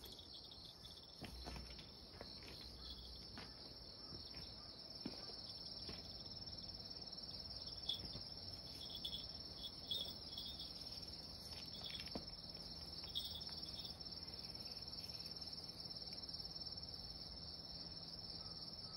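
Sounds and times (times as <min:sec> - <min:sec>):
insects trilling: 0:00.0 - 0:18.9.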